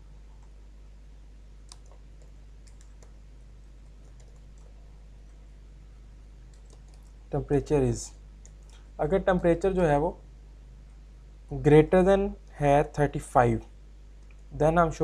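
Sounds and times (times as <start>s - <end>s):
steady low hum: 0.0s - 15.0s
keyboard keys clicking: 1.7s - 3.1s, 4.0s - 4.8s, 6.5s - 7.1s.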